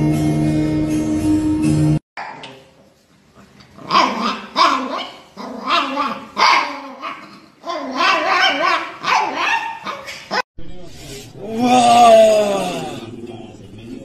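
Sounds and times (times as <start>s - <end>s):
dog barking and yowling: 3.8s - 10.4s.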